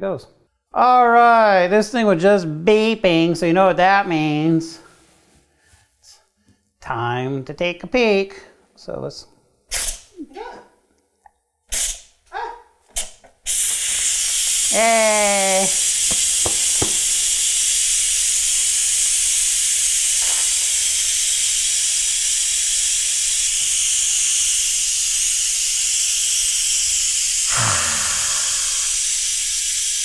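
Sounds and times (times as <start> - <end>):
pressure cooker venting steam: 11.7 - 12.1, 13.0 - 30.0.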